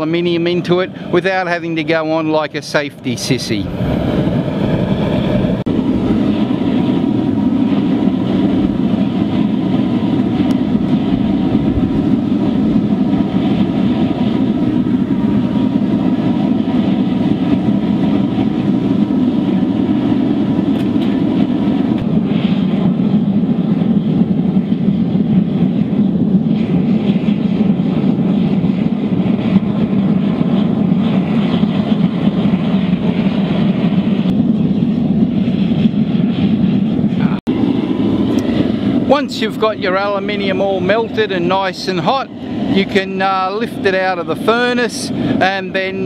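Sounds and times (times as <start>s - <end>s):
burner roaring with forced air: 0.0s - 46.0s.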